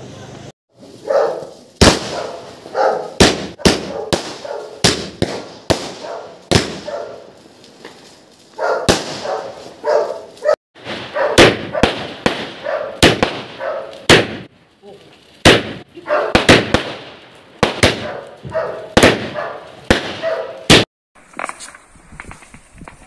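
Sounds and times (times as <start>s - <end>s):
firecrackers bursting: 0.2s - 21.6s
dog barking: 1.0s - 1.5s, 2.1s - 4.8s, 6.0s - 7.3s, 8.6s - 12.0s, 12.6s - 14.1s, 16.0s - 16.5s, 18.0s - 20.7s.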